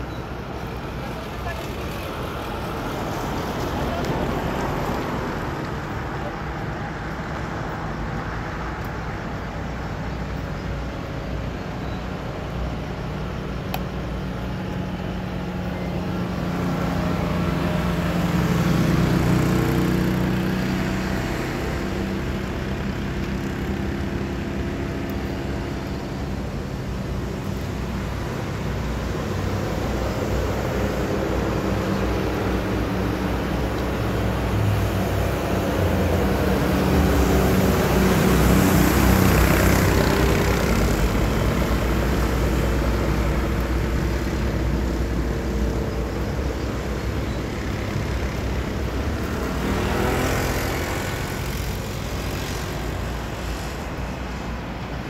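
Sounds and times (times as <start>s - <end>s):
road traffic drone: 0.0s - 55.0s
vehicle passing: 29.0s - 55.0s.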